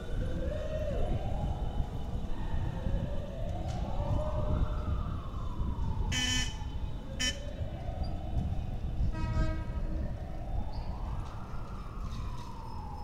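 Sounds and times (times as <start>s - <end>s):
siren wailing: 0.0s - 13.0s
wind and riding rumble: 0.0s - 13.0s.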